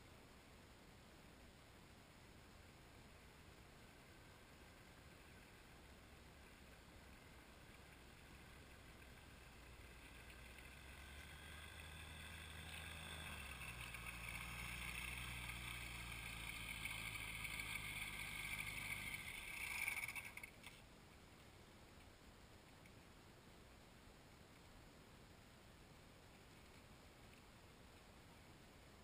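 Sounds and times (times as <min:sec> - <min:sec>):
distant engine: 0:03.9 - 0:20.8.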